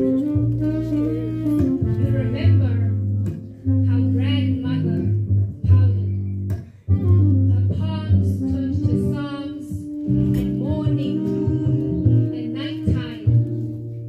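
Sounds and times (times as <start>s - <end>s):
plucked double bass: 0.0s - 14.0s
woman reciting poem: 3.8s - 6.2s, 7.5s - 13.5s.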